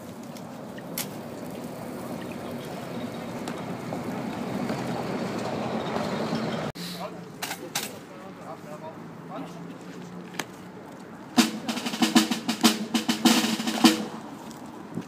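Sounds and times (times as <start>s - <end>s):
motor vehicle rumbling by: 1.2s - 6.9s.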